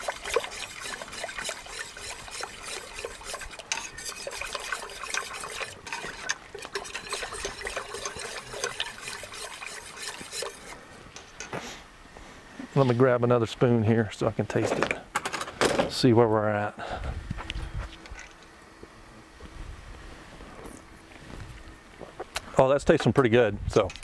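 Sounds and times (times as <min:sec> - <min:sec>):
spoon scraping a metal pot: 0:00.0 - 0:10.8.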